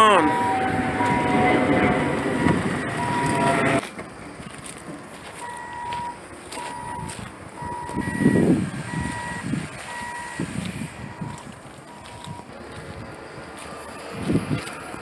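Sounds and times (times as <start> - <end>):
loud rushing noise: 0.0 - 4.3
vehicle reversing alarm beeping: 0.0 - 4.5, 5.2 - 15.0.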